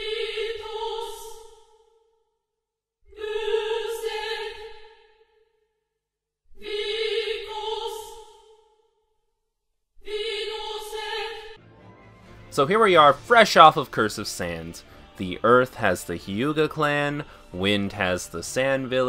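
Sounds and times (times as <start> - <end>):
choir-like voice holding a note: 0.0 - 1.5, 3.1 - 5.2, 6.6 - 8.6, 10.0 - 11.6.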